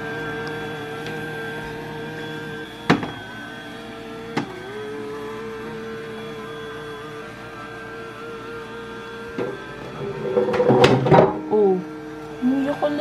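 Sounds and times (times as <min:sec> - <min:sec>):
robotic vacuum motor whine: 0:00.0 - 0:13.0
vacuum knocking into obstacle: 0:09.4 - 0:11.4.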